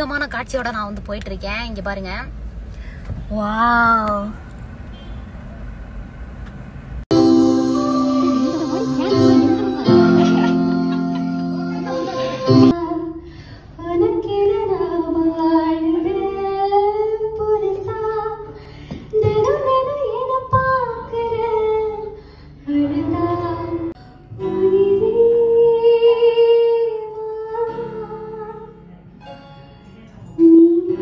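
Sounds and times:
electronic keyboard: 0:07.1 - 0:12.7
woman singing into microphone: 0:07.2 - 0:13.1, 0:19.1 - 0:28.9, 0:30.3 - 0:31.0.

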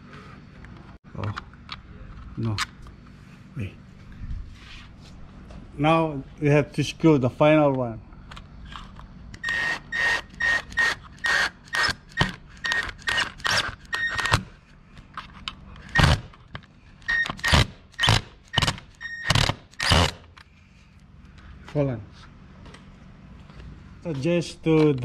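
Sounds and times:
cordless drill driving screw: 0:09.4 - 0:14.4, 0:17.1 - 0:20.2.

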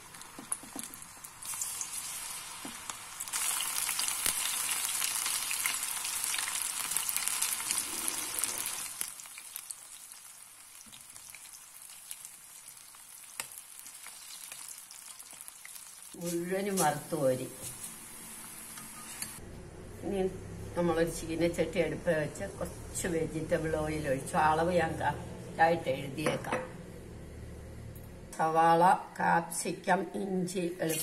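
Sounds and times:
food deep-frying in oil: 0:00.0 - 0:19.4.

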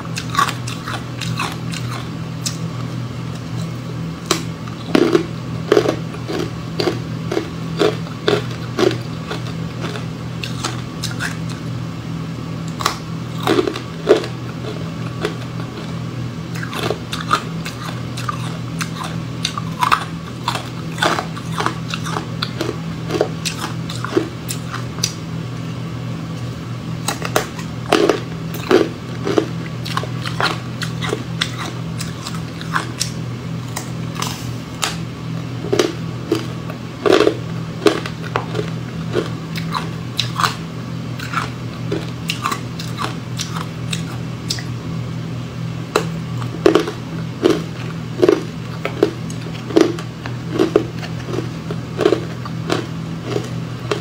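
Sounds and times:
steady low hum: 0:00.0 - 0:54.0
person crunching frozen ice: 0:46.6 - 0:54.0.

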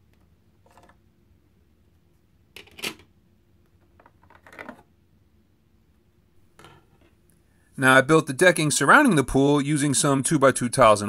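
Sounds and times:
plastic bricks clicking and clattering: 0:03.8 - 0:04.9.

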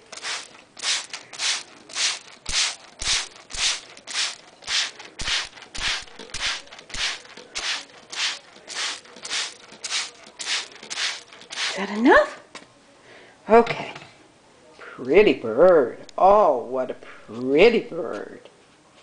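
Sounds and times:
spray bottle squirts: 0:00.0 - 0:11.8.

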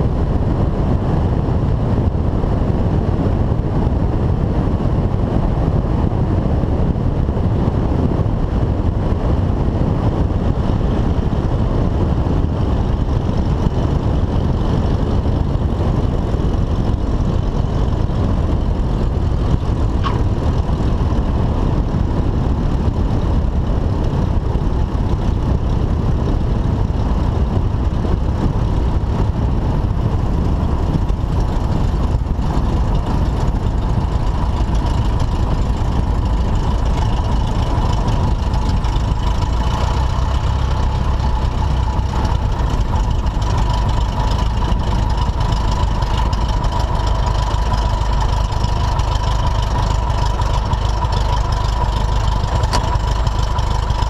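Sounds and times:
light aircraft engine rumbling: 0:00.0 - 0:54.0.

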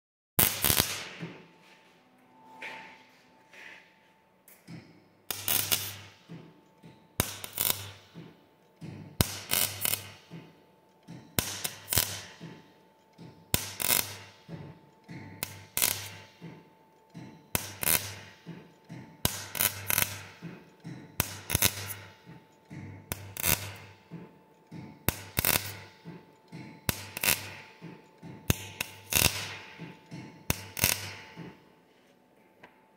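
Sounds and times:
welder arc bursts: 0:00.4 - 0:01.3, 0:05.3 - 0:06.2, 0:07.2 - 0:08.1, 0:09.2 - 0:10.2, 0:11.4 - 0:12.5, 0:13.5 - 0:14.3, 0:15.4 - 0:16.3, 0:17.6 - 0:18.3, 0:19.2 - 0:20.3, 0:21.2 - 0:22.1, 0:23.1 - 0:23.9, 0:25.1 - 0:25.8, 0:26.9 - 0:27.6, 0:28.5 - 0:29.8, 0:30.5 - 0:31.4.

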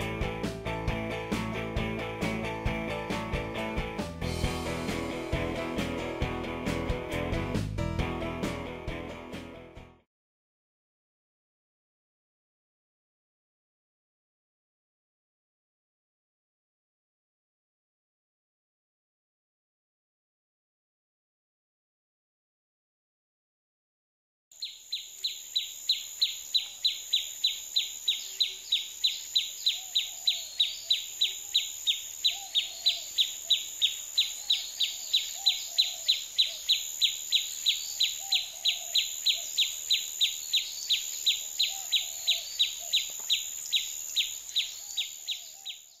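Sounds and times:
high insect drone: 0:24.6 - 0:45.6
faint distant bird calls: 0:24.6 - 0:46.0
insects chirping: 0:24.6 - 0:46.0.

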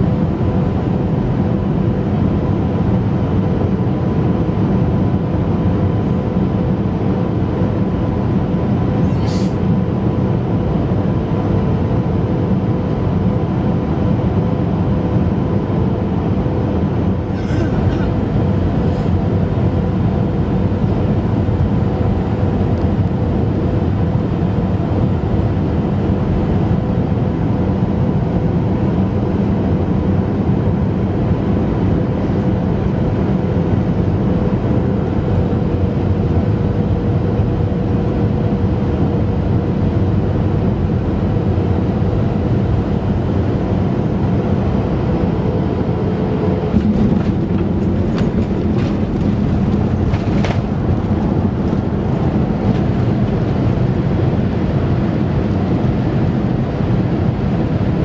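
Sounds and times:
aircraft cabin engine rush: 0:00.0 - 0:58.0
aircraft touchdown bump: 0:46.7 - 0:53.9.

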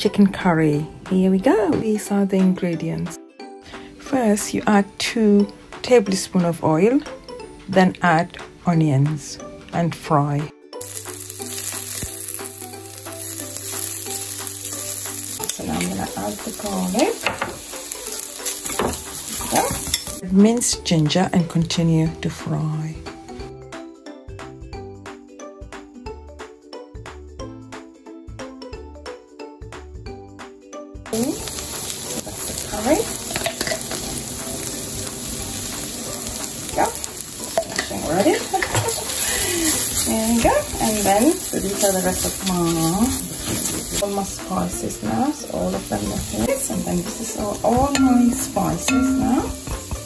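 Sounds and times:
onions sizzling in oil: 0:10.8 - 0:20.7, 0:31.1 - 0:50.0.

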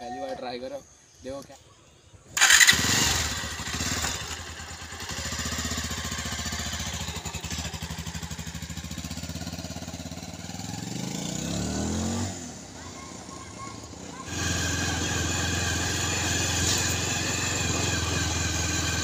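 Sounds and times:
motorcycle engine idling: 0:02.4 - 0:11.0, 0:12.6 - 0:19.0.

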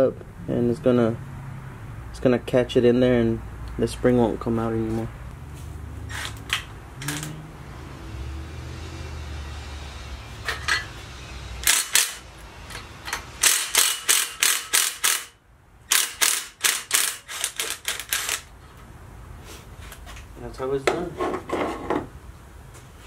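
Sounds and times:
sharp metal clicks: 0:11.6 - 0:18.5.

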